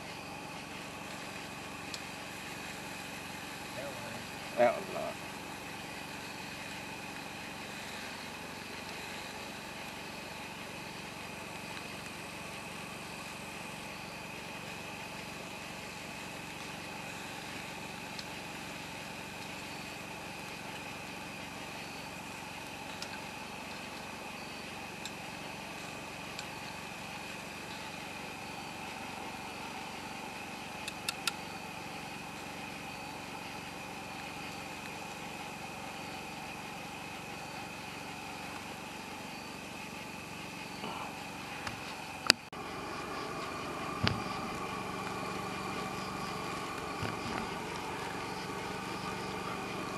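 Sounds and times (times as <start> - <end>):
campfire popping: 0.0 - 49.9
chicken wings sizzling on grill: 0.0 - 49.9
low hum: 40.6 - 49.9.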